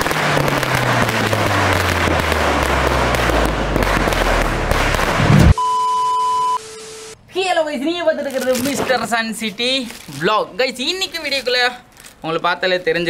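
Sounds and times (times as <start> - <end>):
firecrackers crackling bangs: 0.0 - 5.6
deep tone sliding downward: 0.0 - 6.6
test-pattern beep: 5.4 - 7.2.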